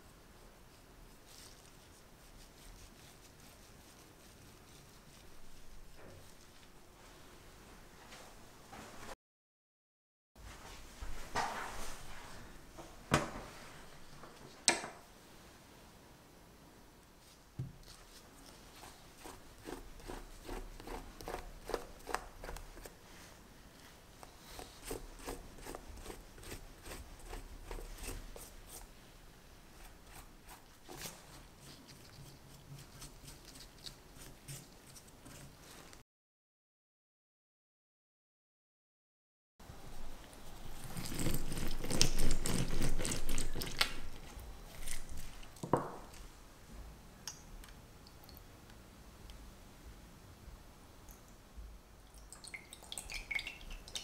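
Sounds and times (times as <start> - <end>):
pastry brush on crisp crust: 0.4 - 7.2, 17.2 - 29.0, 29.7 - 36.0.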